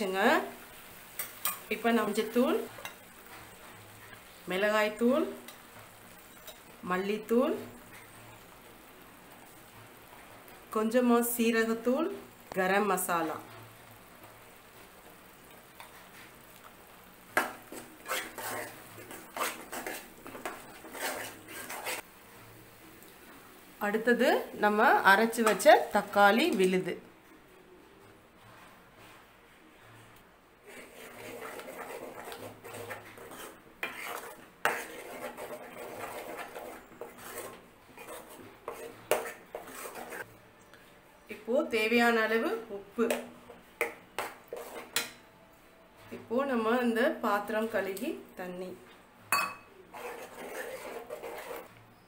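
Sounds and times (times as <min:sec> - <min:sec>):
metal spoon scraping a pan: 0:01.1 - 0:04.3, 0:04.9 - 0:06.8, 0:17.3 - 0:22.0, 0:30.6 - 0:40.3, 0:43.0 - 0:45.2, 0:49.3 - 0:51.7
spoon clinking on pan: 0:06.3 - 0:06.6, 0:49.3 - 0:49.7.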